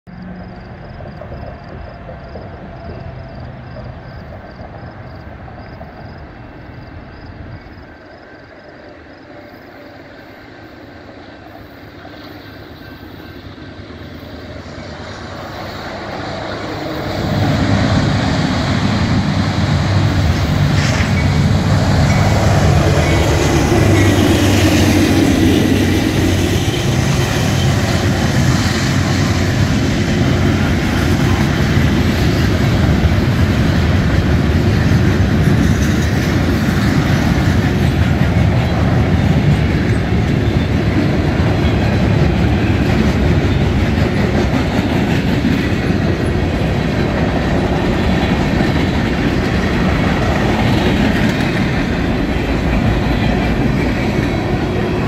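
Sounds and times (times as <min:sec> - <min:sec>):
diesel train engine drone: 0:00.1 - 0:55.0
freight cars rolling by: 0:11.6 - 0:55.0.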